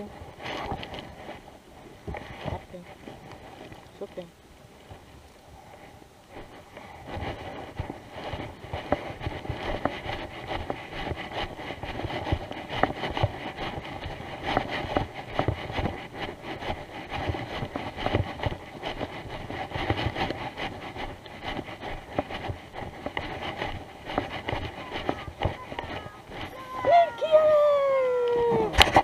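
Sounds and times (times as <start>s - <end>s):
clothing rubbing on microphone: 0.0s - 29.0s
footsteps crunching through grass: 6.3s - 28.0s.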